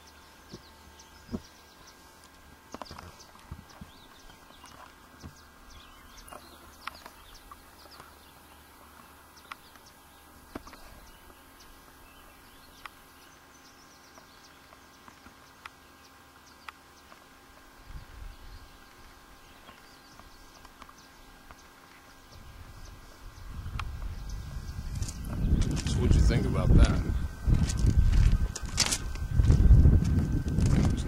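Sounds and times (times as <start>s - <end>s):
low rumble: 22.4s - 31.0s.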